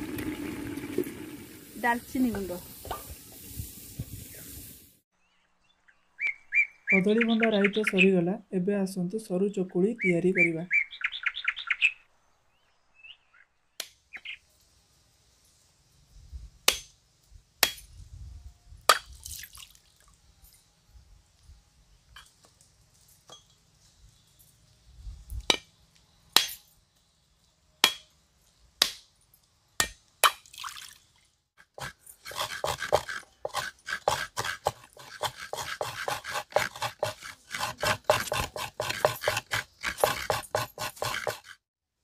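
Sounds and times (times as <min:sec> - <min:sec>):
rhythmic coconut scraping: 0:31.6 - 0:41.6.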